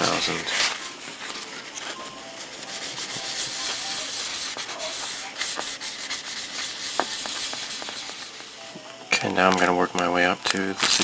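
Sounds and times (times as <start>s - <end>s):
cloth rubbing on plastic: 0.0s - 8.4s.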